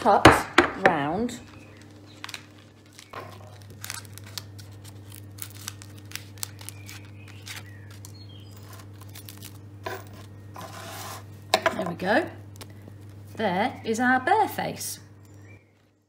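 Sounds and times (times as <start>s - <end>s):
low steady hum: 0.0s - 16.0s
knife crunching through toast: 2.2s - 9.8s.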